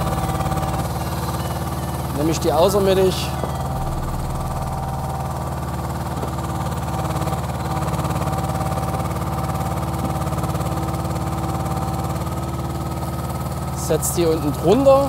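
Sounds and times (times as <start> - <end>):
hydraulic whine: 0.0 - 15.0
truck engine running: 0.0 - 15.0.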